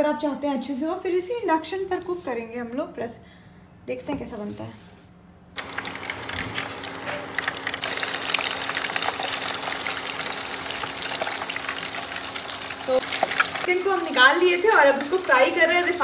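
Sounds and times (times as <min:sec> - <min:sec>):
chicken deep-frying in oil: 0:05.6 - 0:16.0.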